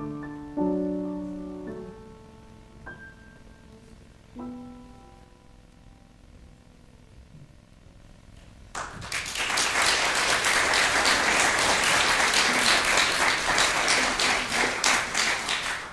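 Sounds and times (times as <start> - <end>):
applause: 8.7 - 15.9.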